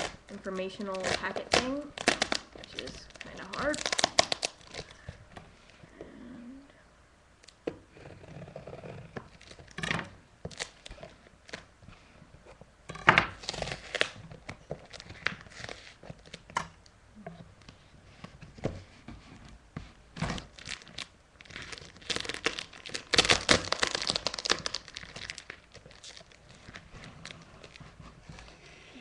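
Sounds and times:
packing tape ripping off cardboard: 0.0 - 5.0, 9.2 - 11.7, 12.9 - 16.6, 20.1 - 27.8.

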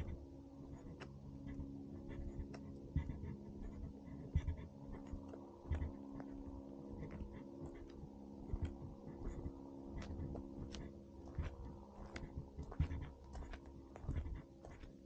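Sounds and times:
faint steady hum: 0.0 - 15.0
footsteps crunching on gravel: 7.1 - 15.0.

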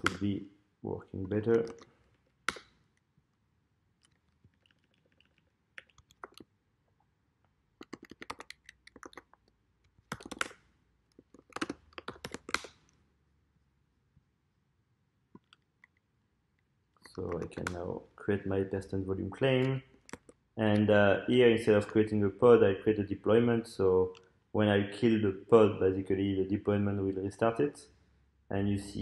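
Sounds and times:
typing on computer keyboard: 4.0 - 6.5, 7.8 - 9.4, 10.0 - 12.8.

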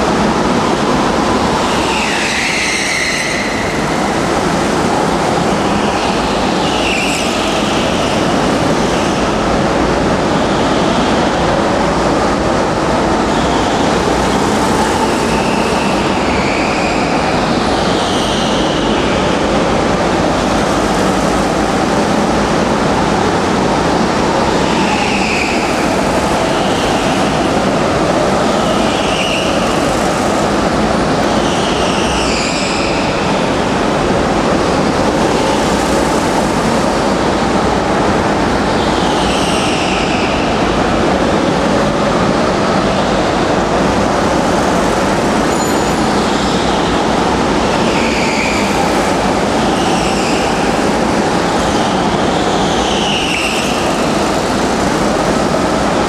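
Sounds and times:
go-kart engines: 0.0 - 56.0
tyre squeals: 1.7 - 4.1, 31.2 - 33.5.

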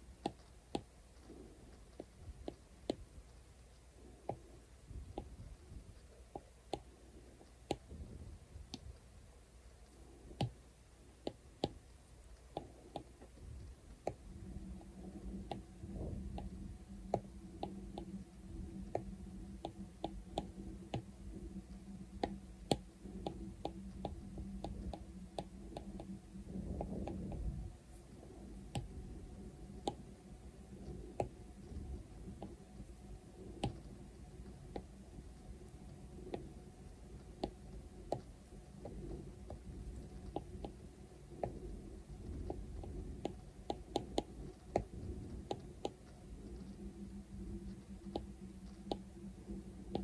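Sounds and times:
low steady hum: 0.0 - 50.0.

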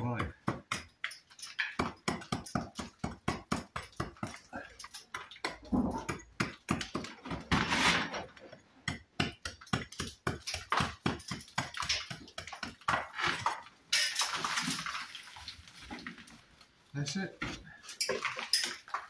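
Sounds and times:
hammer chipping brick: 0.0 - 7.6, 8.8 - 13.7
gritty scraping: 7.4 - 8.4.

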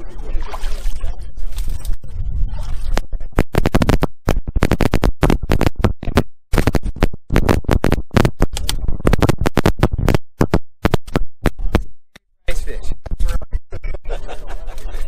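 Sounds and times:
music with fast choppy beat: 3.0 - 11.9.

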